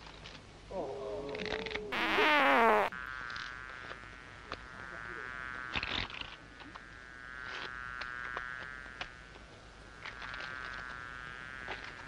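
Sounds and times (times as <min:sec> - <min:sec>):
wavering buzz: 0:02.0 - 0:02.9.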